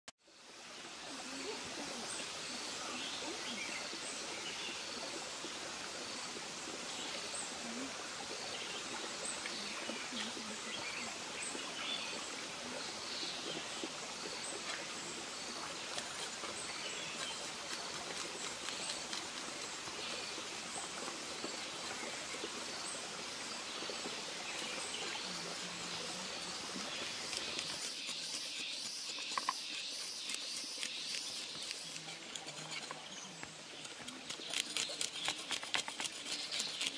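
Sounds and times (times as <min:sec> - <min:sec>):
stream rushing over rocks: 0:00.6 - 0:36.9
birds chirping: 0:21.3 - 0:36.9.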